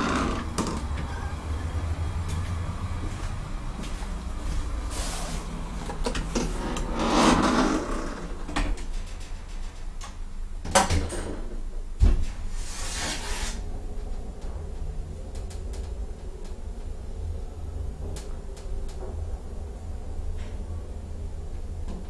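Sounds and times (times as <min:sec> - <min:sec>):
elevator doors sliding: 0:00.0 - 0:10.0.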